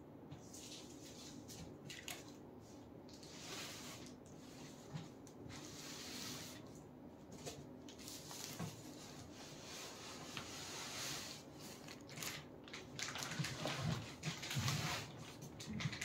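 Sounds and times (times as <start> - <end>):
cardboard flaps rustling and scraping: 3.2 - 11.4.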